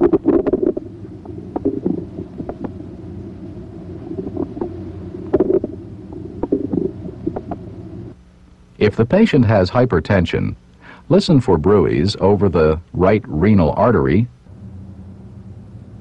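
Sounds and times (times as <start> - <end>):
bowel gurgles and clicks: 0.0 - 2.8, 4.1 - 7.6
steady low hum: 0.0 - 16.0.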